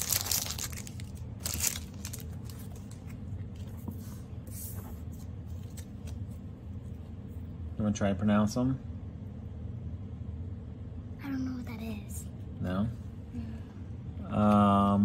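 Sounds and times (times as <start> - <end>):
foil wrapper crinkling: 0.0 - 3.2
cards being handled: 0.0 - 7.1
low steady hum: 0.0 - 15.0.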